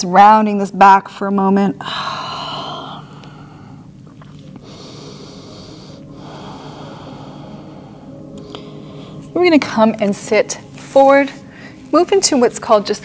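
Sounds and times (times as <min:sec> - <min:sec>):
woman breathing: 0:01.8 - 0:03.9, 0:04.5 - 0:09.4, 0:11.4 - 0:11.9.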